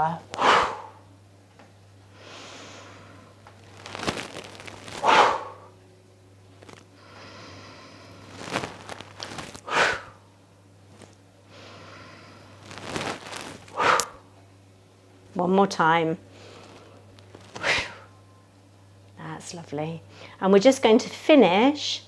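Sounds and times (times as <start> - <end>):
steady low hum: 0.0 - 22.0
forceful exhalations: 0.3 - 1.0, 4.9 - 5.7, 9.3 - 10.2, 11.5 - 14.2, 16.4 - 18.1.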